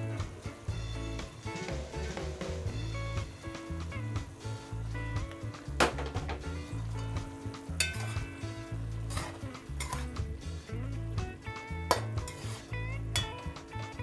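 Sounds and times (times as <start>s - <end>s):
background music with pulsing bass: 0.0s - 14.0s
light sizzle from pot: 0.0s - 14.0s
metal spoon scraping a pot: 7.7s - 10.2s, 11.9s - 13.4s
spoon clinking against metal pot: 7.8s - 8.5s, 9.1s - 10.1s, 11.9s - 13.5s.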